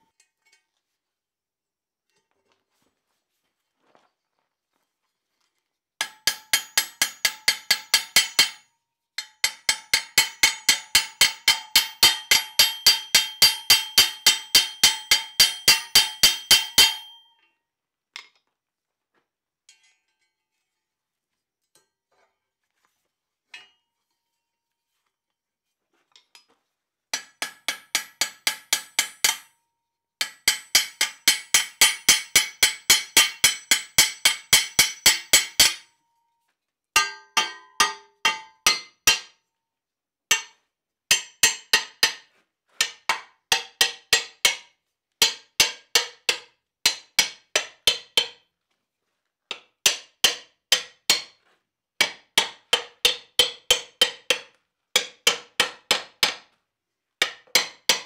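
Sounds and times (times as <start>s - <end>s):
hammer striking iron band: 6.0s - 8.6s, 9.2s - 17.4s, 27.2s - 29.6s, 30.2s - 36.0s, 37.0s - 39.4s, 57.2s - 58.0s.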